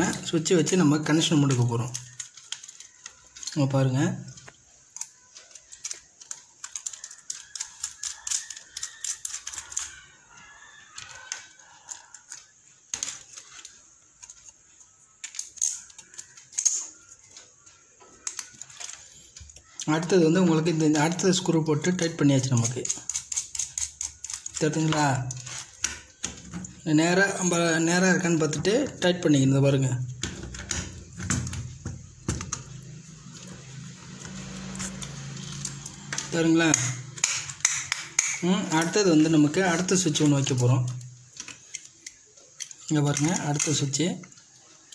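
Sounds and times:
screwdriver clicks and scrapes: 0:22.0 - 0:26.0.

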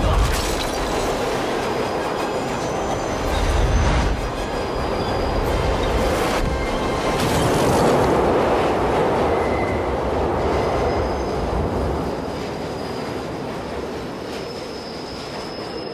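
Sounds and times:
subway train rumbling: 0:00.0 - 0:15.9
high wheel squeal: 0:14.3 - 0:15.9.

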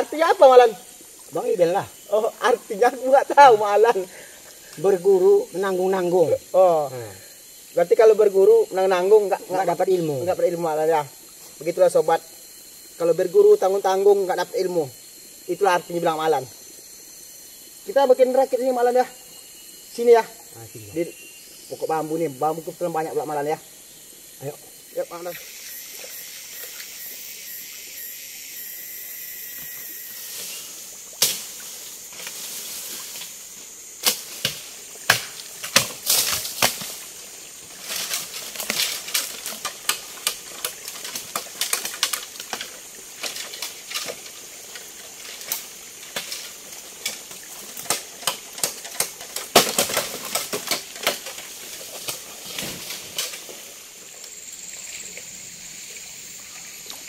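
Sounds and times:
steady high hiss: 0:00.0 - 0:57.0
bamboo cracking and knocking: 0:30.3 - 0:33.4, 0:34.0 - 0:37.1, 0:37.7 - 0:53.7.

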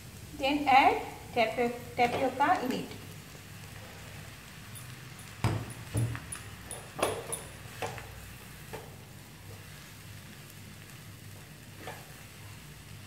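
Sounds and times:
faint sizzle: 0:00.0 - 0:13.0
wooden spatula scraping a wok: 0:07.6 - 0:10.5, 0:11.2 - 0:12.7.

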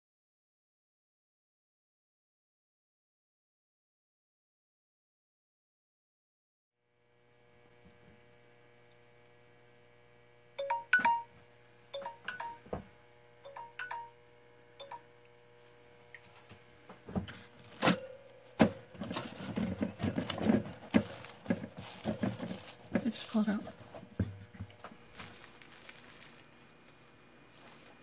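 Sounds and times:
faint electrical hum: 0:06.9 - 0:28.0
short paired electronic chimes: 0:10.6 - 0:11.3.

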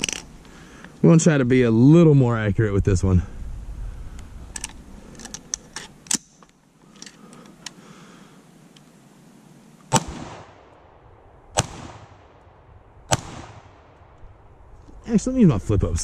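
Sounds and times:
rifle shots echoing: 0:09.9 - 0:14.6.

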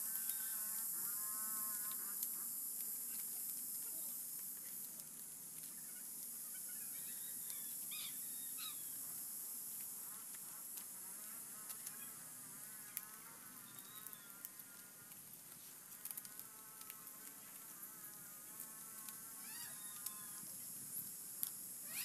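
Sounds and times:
palm leaves rustling and clicking: 0:00.0 - 0:00.6, 0:01.8 - 0:08.0, 0:09.0 - 0:12.2, 0:12.8 - 0:21.7
high-pitched insect drone: 0:00.0 - 0:03.5, 0:21.8 - 0:22.0.

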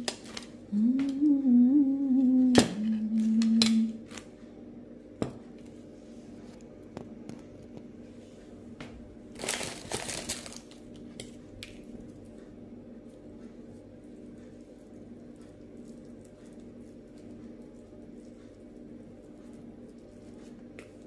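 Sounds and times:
woman humming: 0:00.7 - 0:04.1
crinkling rustle: 0:09.3 - 0:11.0.

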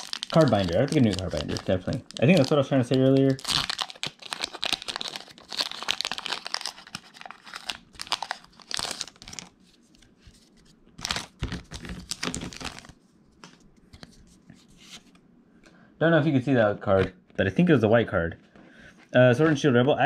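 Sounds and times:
foil wrapper tearing and crinkling: 0:00.0 - 0:09.5, 0:11.0 - 0:13.0.

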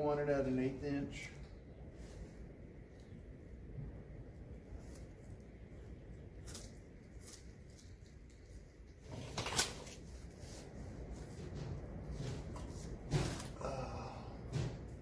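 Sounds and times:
masking tape rustling: 0:04.6 - 0:13.8.

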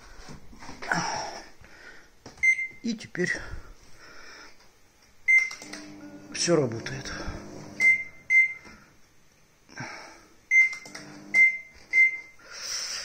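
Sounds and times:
microwave keypad beeps: 0:02.4 - 0:02.8, 0:05.3 - 0:06.2, 0:07.8 - 0:08.6, 0:10.5 - 0:12.4
microwave running hum: 0:05.2 - 0:12.4.

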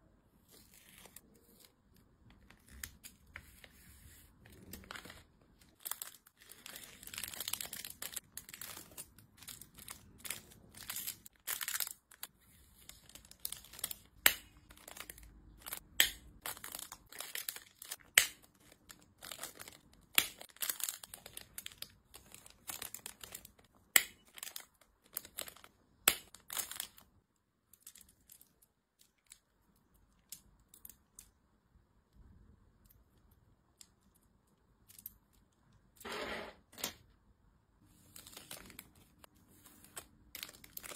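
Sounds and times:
plastic bags crinkling: 0:04.6 - 0:15.8, 0:16.4 - 0:25.7, 0:38.0 - 0:40.9.

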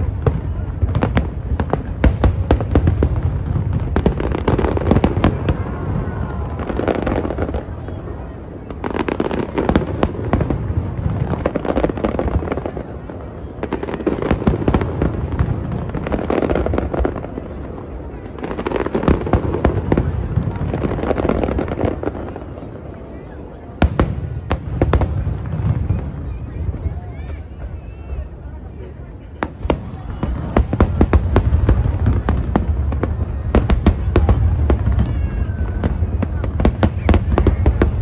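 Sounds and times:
fireworks bangs and crackling: 0:00.0 - 0:38.0.

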